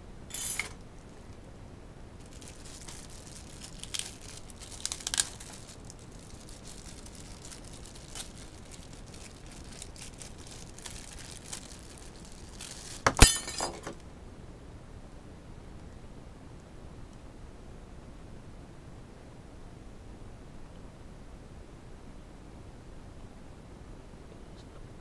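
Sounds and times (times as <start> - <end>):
plastic bag crinkling: 2.2 - 14.0.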